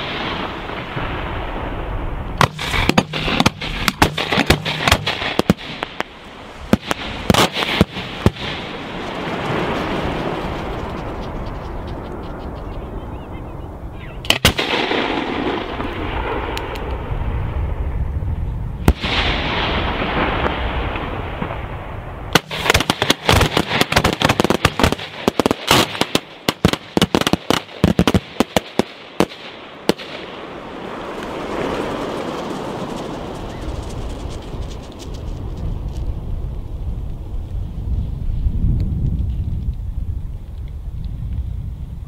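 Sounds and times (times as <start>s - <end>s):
rapid sharp firework cracks: 2.4s - 10.5s, 14.3s - 16.9s, 22.4s - 33.3s
rumbling echo: 14.3s - 25.3s.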